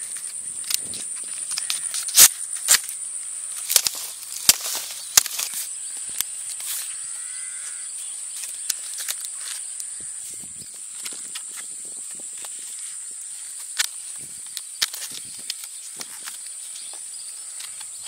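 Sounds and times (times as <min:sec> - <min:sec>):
high-pitched insect buzz: 0:00.0 - 0:18.0
machete cracking dry leaf sheath: 0:00.1 - 0:07.0, 0:08.3 - 0:09.8, 0:13.5 - 0:16.7.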